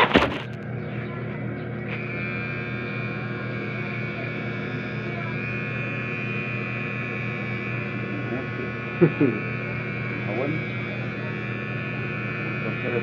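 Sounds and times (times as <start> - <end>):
electric hair trimmer buzzing: 0.0 - 13.0.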